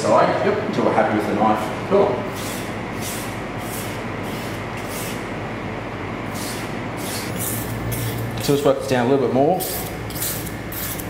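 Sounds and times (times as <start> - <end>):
knife rasping on whetstone: 6.4 - 8.2.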